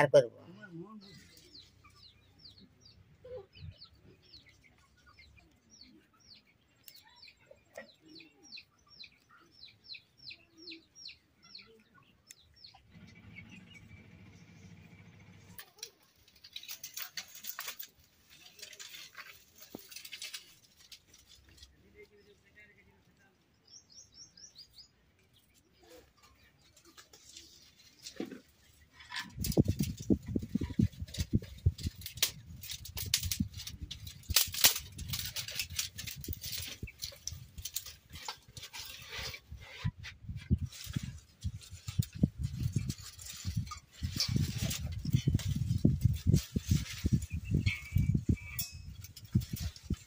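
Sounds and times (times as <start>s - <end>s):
dry twigs crackling and rustling: 1.0s - 2.8s, 15.3s - 23.2s, 25.2s - 50.0s
dry twigs snapping: 15.6s - 21.7s, 29.4s - 39.0s.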